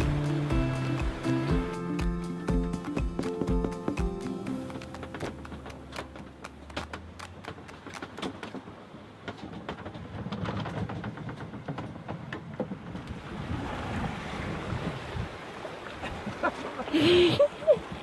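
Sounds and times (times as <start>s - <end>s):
wind and waves rushing: 0.0s - 3.0s, 12.4s - 18.0s
quick sharp clicks and knocks: 4.7s - 8.7s.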